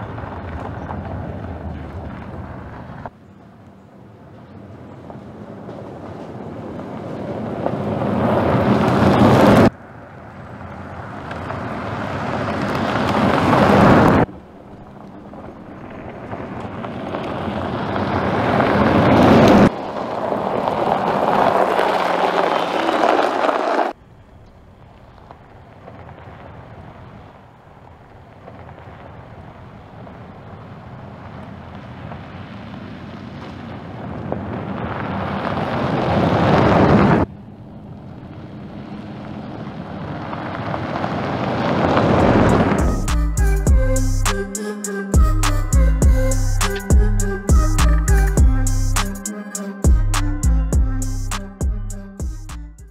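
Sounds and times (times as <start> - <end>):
tyres on gravel track: 0.0 - 52.9
car rushing past: 5.7 - 24.0, 32.2 - 43.2.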